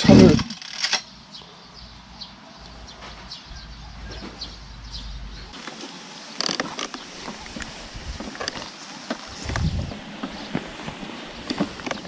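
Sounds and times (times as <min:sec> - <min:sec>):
small birds chirping: 0:00.0 - 0:12.0
wind rumble on microphone: 0:07.4 - 0:12.0.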